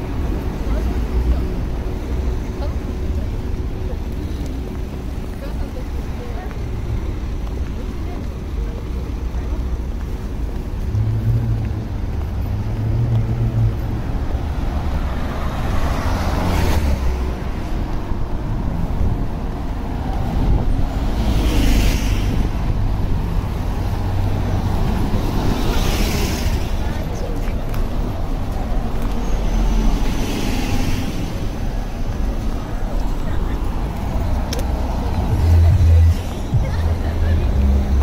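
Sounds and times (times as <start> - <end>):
cars driving past: 8.8 - 38.0
low engine rumble: 31.4 - 38.0.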